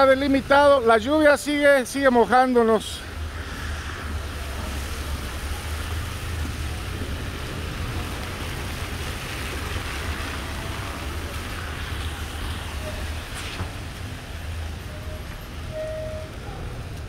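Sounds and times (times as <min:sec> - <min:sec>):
rain on wet street: 0:00.0 - 0:17.0
wind rumble on microphone: 0:03.1 - 0:14.7.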